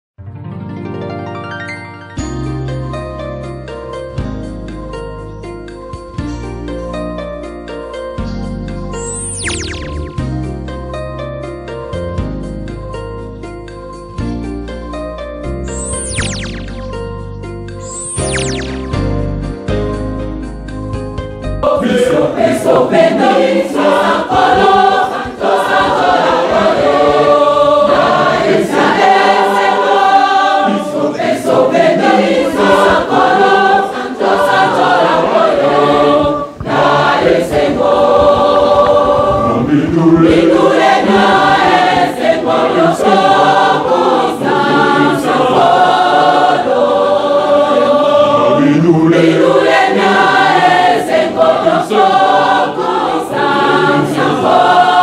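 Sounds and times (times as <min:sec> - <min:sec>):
choir singing a hymn: 0:21.5 - 0:55.0.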